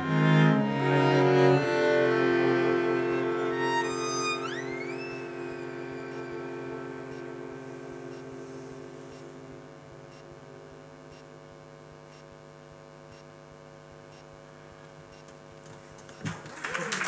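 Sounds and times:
string quartet chord: 0:00.0 - 0:09.9.

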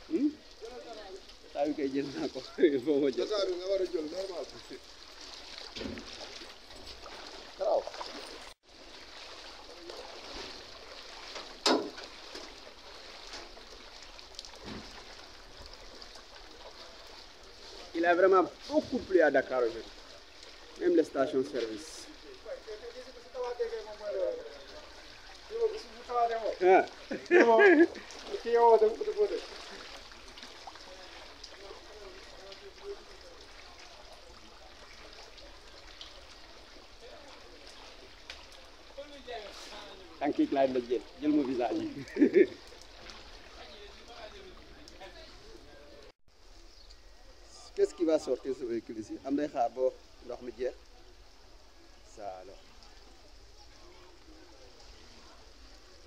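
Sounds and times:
floodwater sloshing around legs: 0:00.0 - 0:45.5
loud thump or splash: 0:05.2 - 0:08.3, 0:09.2 - 0:12.6, 0:14.5 - 0:15.2.

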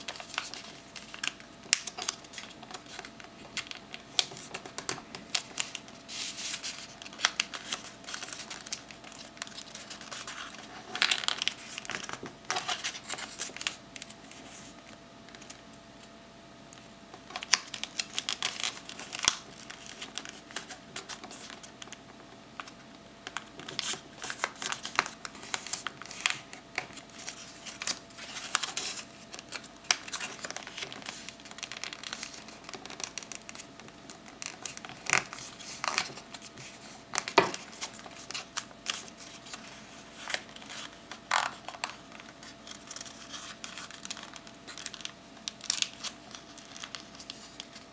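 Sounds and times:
paper crinkling and crackling: 0:00.0 - 0:15.6, 0:16.8 - 0:47.9.

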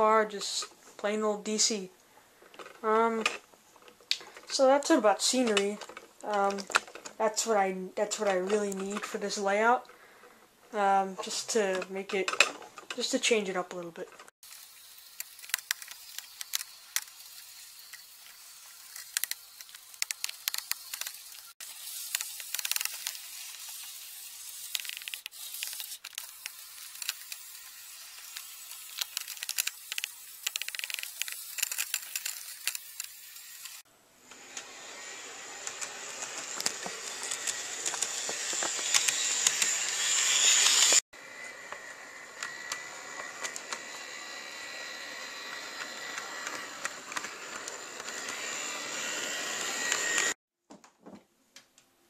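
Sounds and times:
model train rolling on track: 0:34.5 - 0:41.0, 0:41.7 - 0:50.4
wheels clicking on rails: 0:35.6 - 0:41.0, 0:41.7 - 0:50.4.

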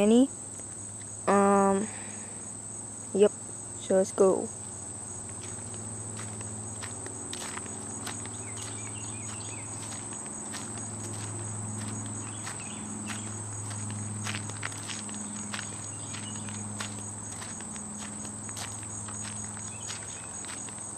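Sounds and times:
crickets trilling: 0:00.0 - 0:20.9
low hum: 0:04.5 - 0:20.8.

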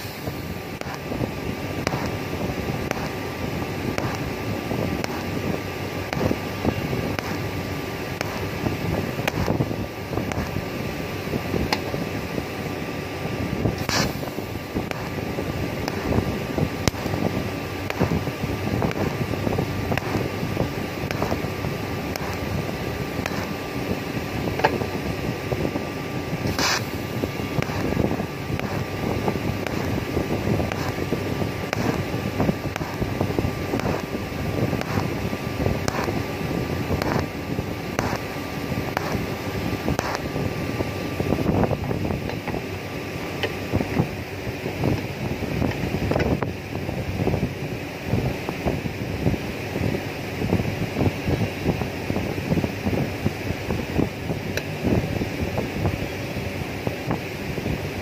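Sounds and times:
sharp welding crackles: 0:00.0 - 0:41.8
welding arc hissing buzz: 0:00.0 - 0:58.0.

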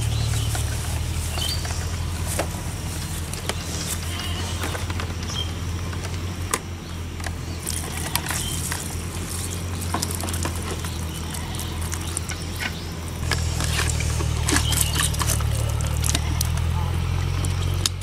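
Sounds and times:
low hum: 0:00.0 - 0:18.0
fish splashing: 0:07.6 - 0:16.6.

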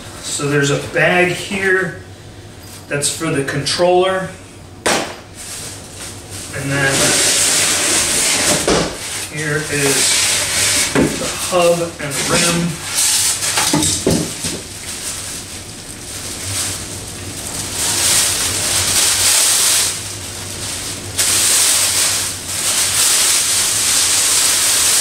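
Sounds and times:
plastic bag rustling and crinkling: 0:05.2 - 0:25.0.

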